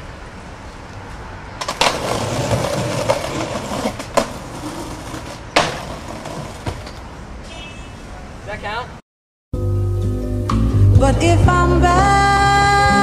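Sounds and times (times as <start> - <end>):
skateboard wheels rolling on concrete: 0.0 - 8.9
skateboard clacks: 1.6 - 7.0.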